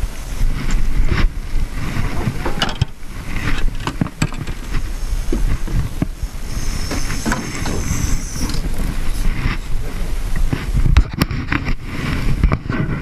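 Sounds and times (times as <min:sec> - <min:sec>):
faint high hiss: 0:00.0 - 0:10.8
wind rumbling on microphone: 0:00.0 - 0:13.0
knocks and clicks in metal boat: 0:02.2 - 0:04.7.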